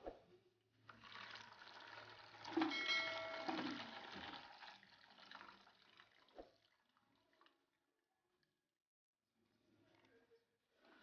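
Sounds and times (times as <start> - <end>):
water pouring into a basin: 0.8 - 7.9.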